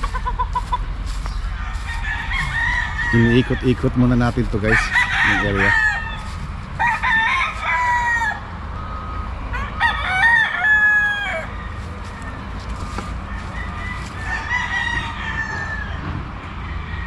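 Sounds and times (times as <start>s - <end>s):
steady low rumble: 0.0s - 9.6s
roosters crowing: 0.0s - 17.0s.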